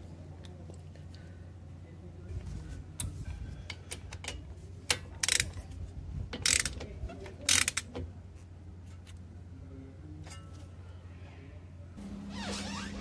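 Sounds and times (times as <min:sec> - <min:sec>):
ratchet wrench clicking: 0:03.9 - 0:05.6, 0:06.4 - 0:06.8, 0:07.5 - 0:07.9.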